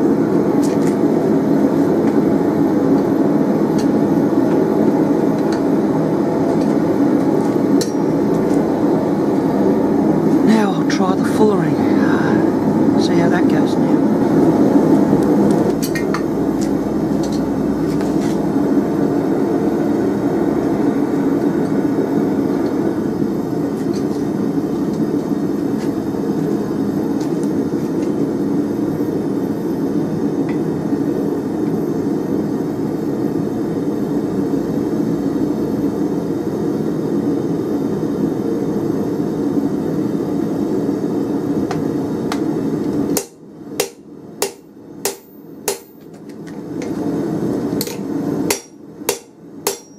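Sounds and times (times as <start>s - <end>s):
loud mechanical drone: 0.0s - 36.2s
hammer ringing on anvil: 43.2s - 46.0s, 47.8s - 49.9s.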